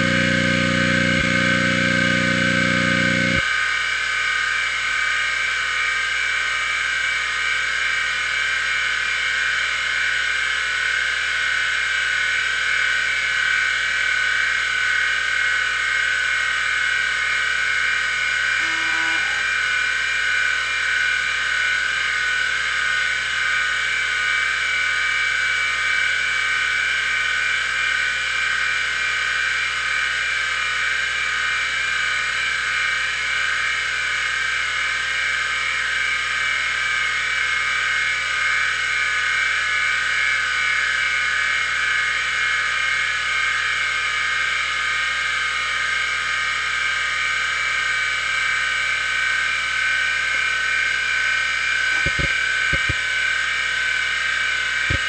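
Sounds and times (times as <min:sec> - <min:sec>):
hard drive whine: 0:00.0 - 0:03.8, 0:16.3 - 0:23.1, 0:49.6 - 0:53.2, 0:54.8 - 0:55.0
hard drive head knocks: 0:52.0 - 0:53.0.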